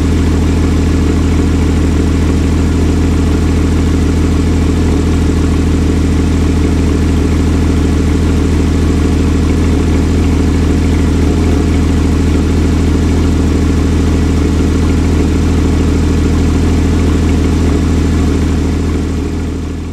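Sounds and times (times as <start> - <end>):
car engine idling: 0.0 - 19.9.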